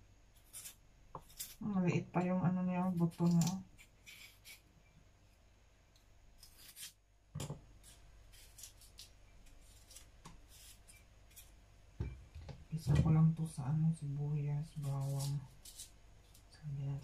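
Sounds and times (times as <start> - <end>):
knife cutting and scraping: 0.4 - 1.6, 3.0 - 4.6, 6.4 - 7.0, 7.8 - 11.5, 14.7 - 16.5.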